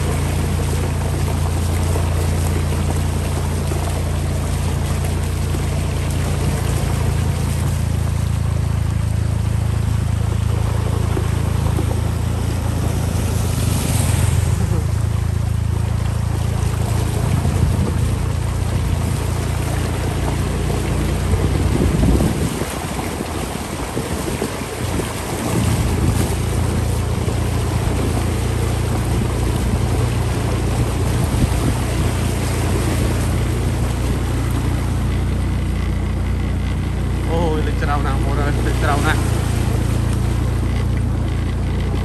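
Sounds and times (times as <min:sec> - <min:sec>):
broad rushing noise: 0:00.0 - 0:42.0
small engine running: 0:00.0 - 0:42.0.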